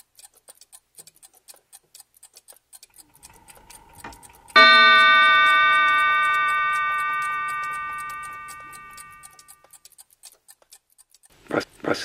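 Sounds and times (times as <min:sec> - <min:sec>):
clock ticking: 0:00.0 - 0:12.0
bell chime: 0:04.6 - 0:09.3.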